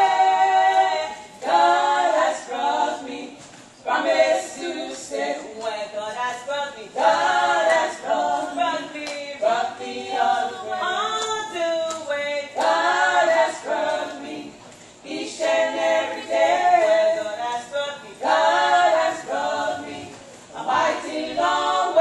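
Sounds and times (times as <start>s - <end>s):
women singing gospel: 0.0s - 22.0s.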